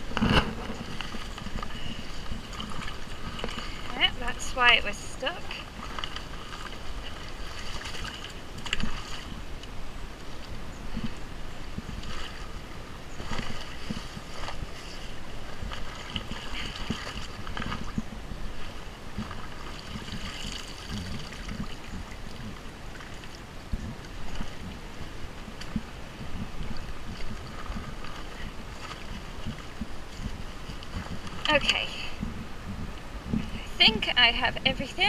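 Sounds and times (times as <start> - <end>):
running stream: 0.0 - 35.0
footsteps splashing in water: 5.5 - 9.4, 13.2 - 23.4.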